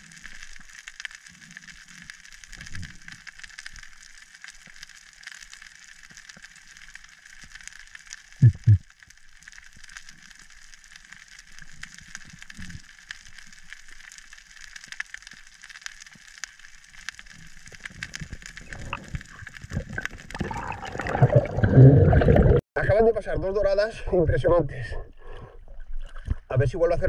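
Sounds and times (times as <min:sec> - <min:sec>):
small scattered clicks: 0:00.0 - 0:20.4
water rushing and sloshing: 0:18.7 - 0:22.6.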